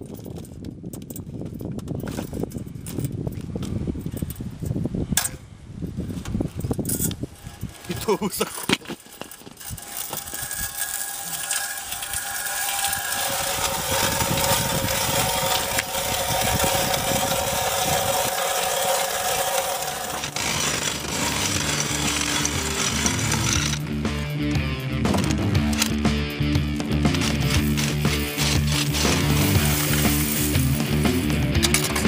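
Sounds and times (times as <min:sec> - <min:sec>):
ice auger grinding through ice: 0:07.4 - 0:23.9, 0:27.0 - 0:32.0
music: 0:21.4 - 0:32.0.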